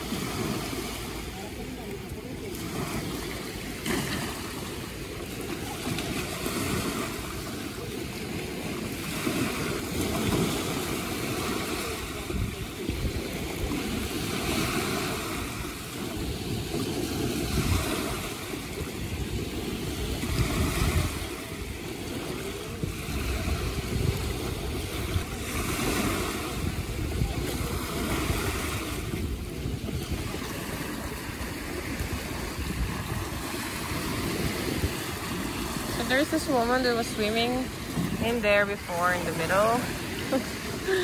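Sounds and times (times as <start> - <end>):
ocean surf on beach: 0.0 - 41.0
wind on microphone: 0.0 - 41.0.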